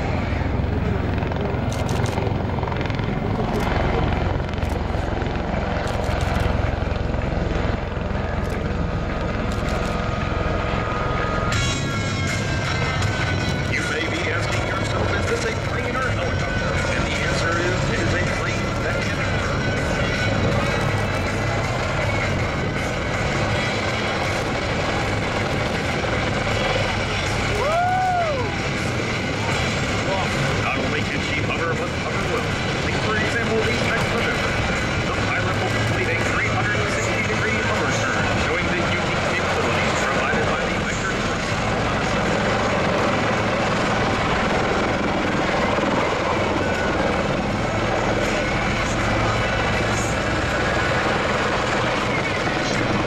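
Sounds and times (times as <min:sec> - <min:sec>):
low pulsing throb: 0:00.0 - 0:13.8
turboshaft engine noise: 0:00.0 - 0:53.0.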